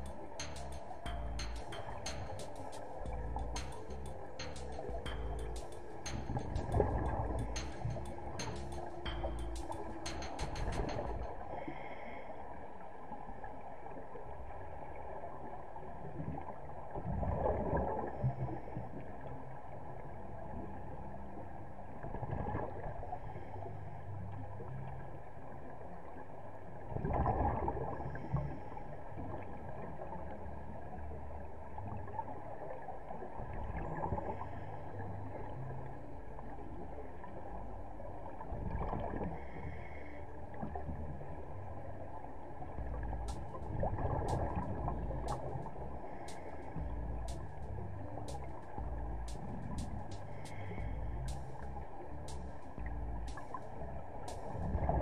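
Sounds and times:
low underwater rumble: 0.0 - 12.0, 26.7 - 55.0.

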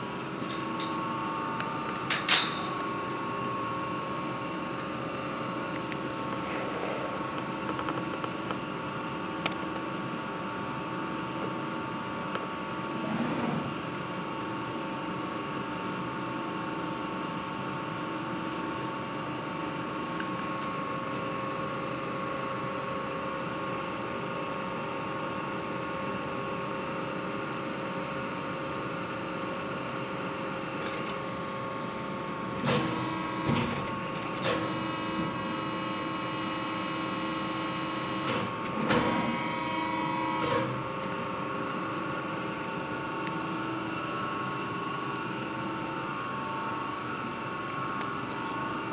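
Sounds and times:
machine whirring and clunks: 0.3 - 3.7, 4.7 - 9.6, 12.3 - 14.4, 32.6 - 35.8, 37.1 - 41.2.

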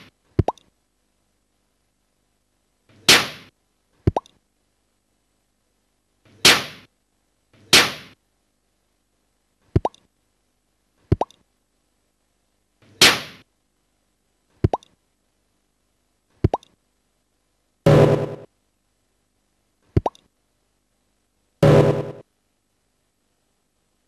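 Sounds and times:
airlock bubbles plopping: 9.8 - 10.0, 11.1 - 11.3, 14.7 - 14.9, 16.5 - 16.7, 20.0 - 20.2.

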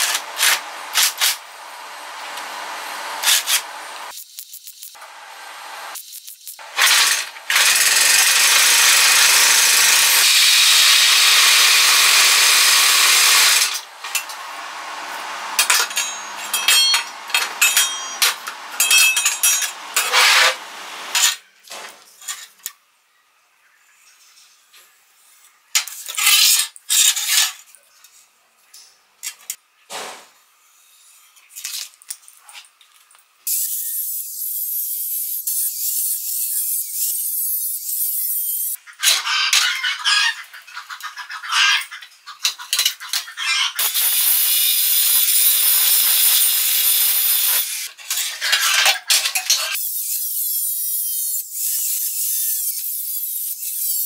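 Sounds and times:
welding arc hissing and crackling: 0.0 - 21.2, 43.8 - 47.9
angle grinder: 0.0 - 21.4, 43.8 - 54.0
steel parts clinking on workbench: 15.6 - 21.4.

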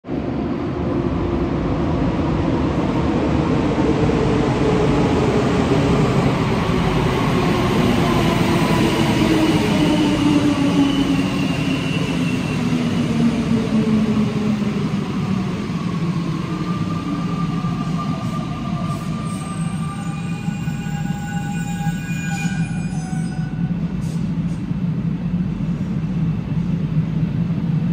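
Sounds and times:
metro train running noise: 0.0 - 27.9.

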